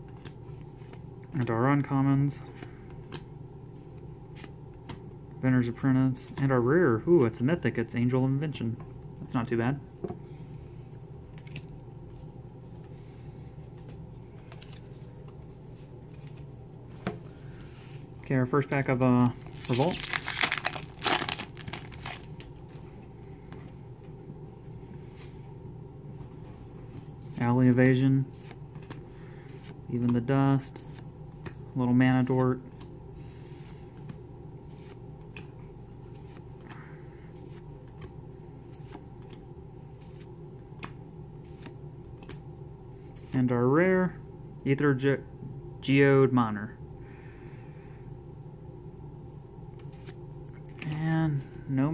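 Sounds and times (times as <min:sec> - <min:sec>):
low room hum: 0:00.0 - 0:51.9
cards swishing and flicking: 0:37.4 - 0:42.4.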